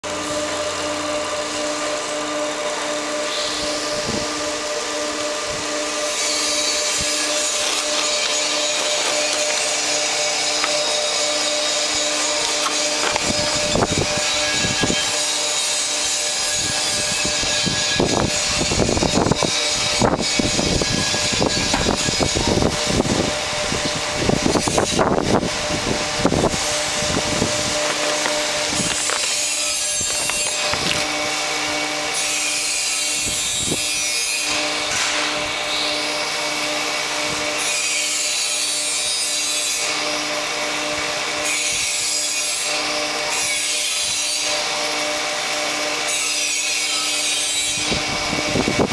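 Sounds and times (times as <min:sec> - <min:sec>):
steady mechanical hum: 0:00.0 - 0:48.9
metal parts creaking and scraping: 0:06.0 - 0:22.7, 0:26.3 - 0:31.3.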